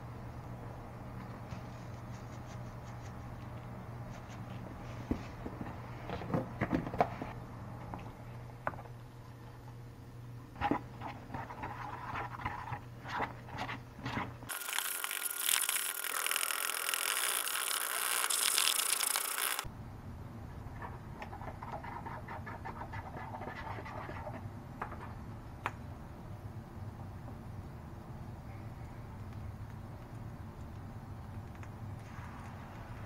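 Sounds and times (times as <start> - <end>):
utensil stirring batter in bowl: 10.6 - 14.4
loud steady hiss: 14.5 - 19.7.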